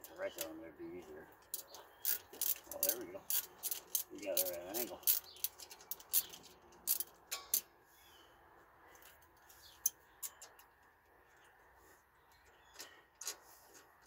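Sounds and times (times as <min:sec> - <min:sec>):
ratchet clicking: 0:01.5 - 0:07.6.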